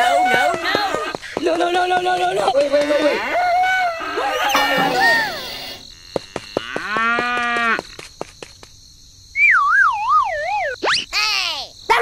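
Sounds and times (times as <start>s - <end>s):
wobbling whistle sliding down: 9.4s - 11.1s.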